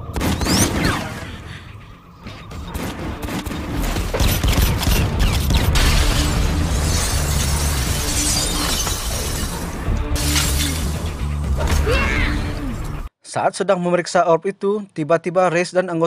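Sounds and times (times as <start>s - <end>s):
low film score music: 0.0s - 13.1s
ceiling breaking with debris crashing: 5.2s - 9.6s.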